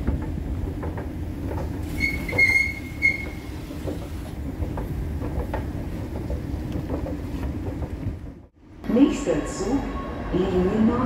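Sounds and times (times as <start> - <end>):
low rumble of rail traffic: 0.0 - 11.0
train wheels squealing on rails: 1.8 - 4.1.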